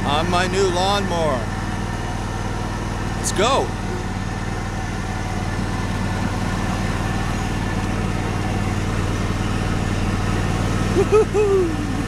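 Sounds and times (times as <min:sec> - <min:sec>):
riding lawn mower engine: 0:00.0 - 0:12.0.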